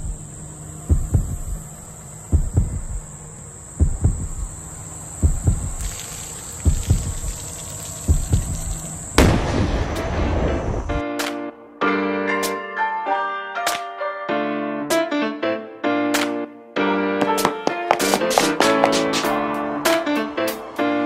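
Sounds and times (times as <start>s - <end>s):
steady high-pitched whine: 0.0s - 9.4s
low heartbeat-like thumps: 0.8s - 1.6s, 2.3s - 3.1s, 3.8s - 4.6s, 5.2s - 9.5s
loud hit: 9.2s - 10.9s.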